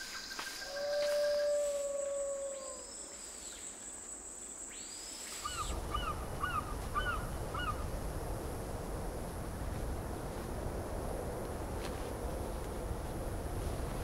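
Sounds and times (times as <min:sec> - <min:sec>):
insect trill: 0:00.0 - 0:08.2
wind-like rush: 0:05.4 - 0:14.0.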